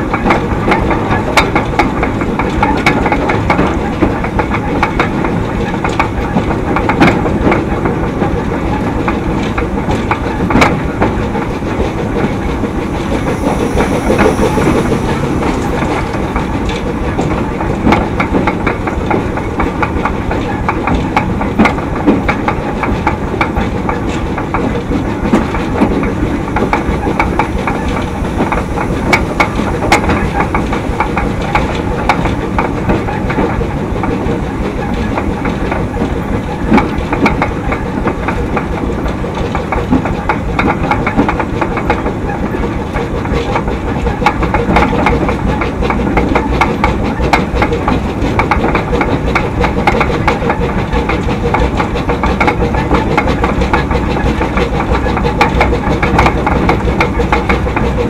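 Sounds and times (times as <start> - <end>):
steam train rumble: 0.0 - 58.0
wheels clicking over rail joints: 0.0 - 58.0
faint high squeal: 12.3 - 17.8.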